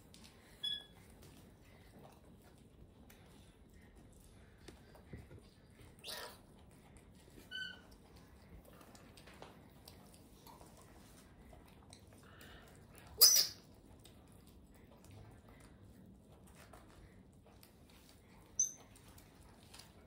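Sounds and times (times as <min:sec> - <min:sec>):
monkey squealing: 0:13.2 - 0:13.6.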